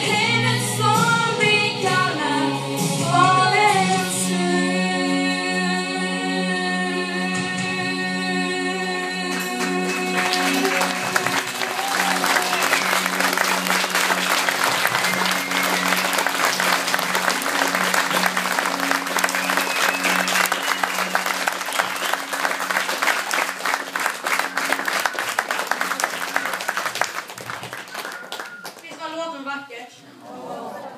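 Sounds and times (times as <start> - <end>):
song with held chord: 0.0 - 27.3
audience applause: 9.5 - 29.1.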